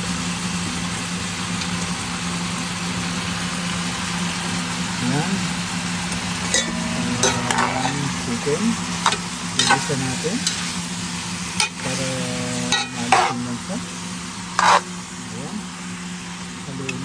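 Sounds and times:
chicken sizzling in a pan: 0.0s - 17.0s
low steady hum: 4.9s - 17.0s
spatula scraping a pan: 6.6s - 10.9s, 12.7s - 13.6s, 14.4s - 15.0s.

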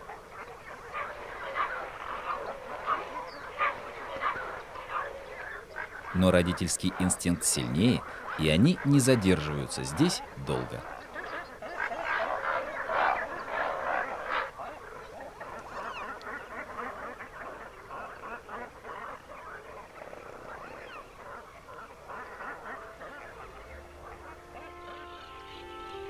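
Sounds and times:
waterbirds calling: 0.0s - 26.0s
music: 22.7s - 26.0s.

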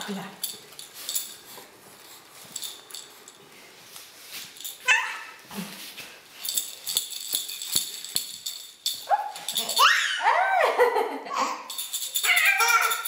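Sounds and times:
toy ball rattling and rustling: 0.0s - 10.2s, 11.6s - 13.0s
baby squealing: 9.7s - 10.6s, 12.2s - 13.0s.

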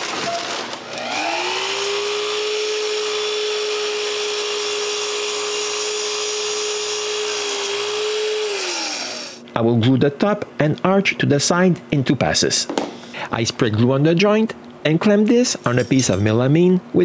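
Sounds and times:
saw motor spinning up: 0.4s - 9.4s
dust extractor hissing: 0.8s - 9.4s.

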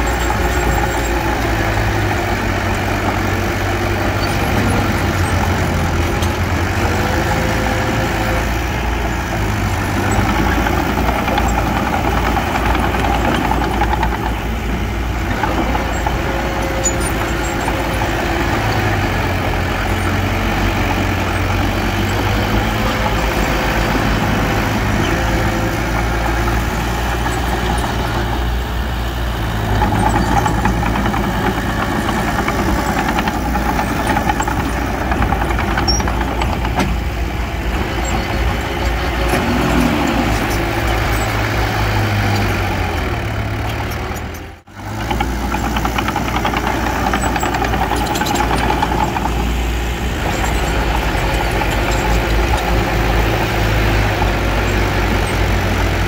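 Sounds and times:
bulldozer diesel engine running: 0.0s - 56.0s.

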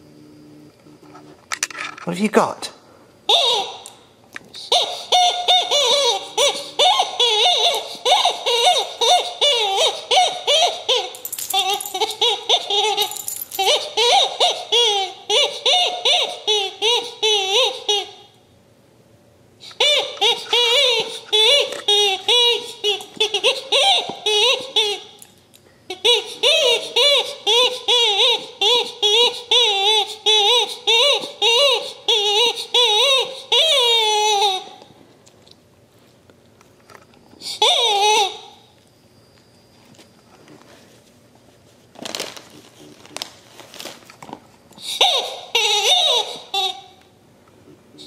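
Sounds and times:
squeaky dog toy squawking: 3.3s - 3.9s, 4.6s - 18.3s, 19.7s - 25.2s, 25.9s - 34.8s, 37.4s - 38.7s, 44.8s - 47.0s.

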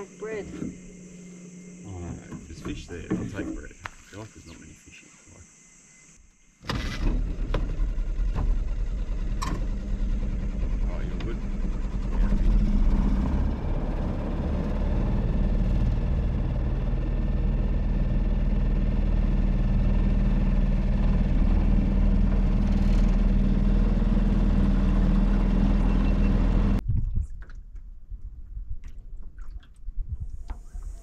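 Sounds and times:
outboard motor running: 0.0s - 3.8s, 6.6s - 26.8s.

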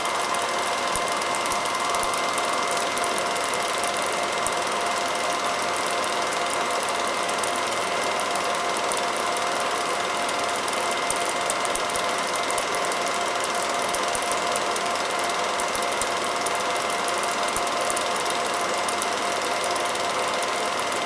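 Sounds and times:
film projector whirring: 0.0s - 21.0s
projector clicking: 0.0s - 21.0s.

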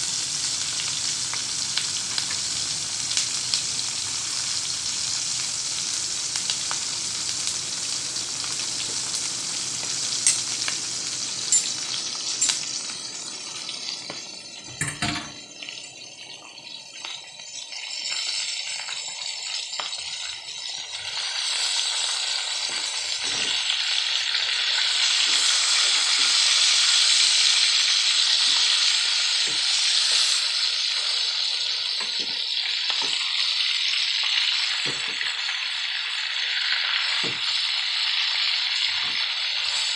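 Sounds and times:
broth boiling and bubbling: 12.9s - 39.9s.

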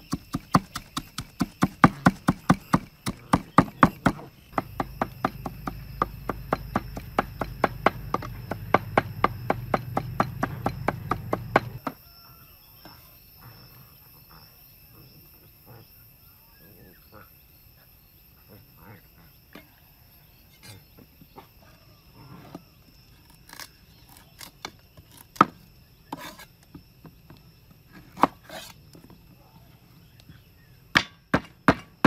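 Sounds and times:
cleaver chopping on wooden board: 0.0s - 12.0s, 31.0s - 31.9s
faint insect drone: 0.0s - 32.0s.

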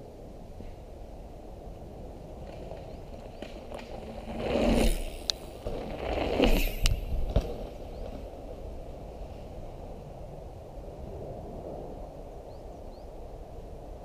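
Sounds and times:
bike tyres on dirt: 0.6s - 10.4s.

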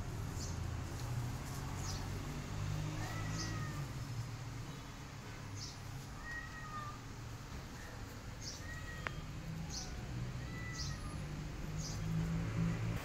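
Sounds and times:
kitten meowing: 3.0s - 4.0s, 6.1s - 7.0s, 8.4s - 11.3s.

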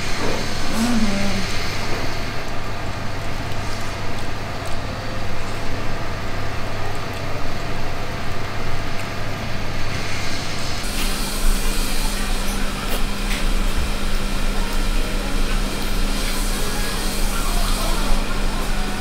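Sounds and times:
low machine hum: 0.0s - 19.0s
higher hum: 0.6s - 2.2s.

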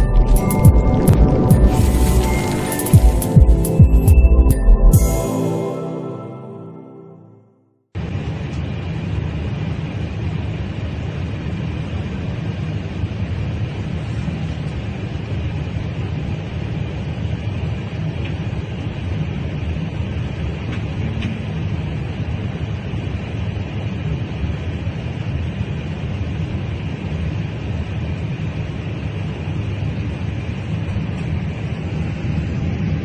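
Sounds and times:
vehicle cabin rumble with hiss: 8.1s - 33.0s.

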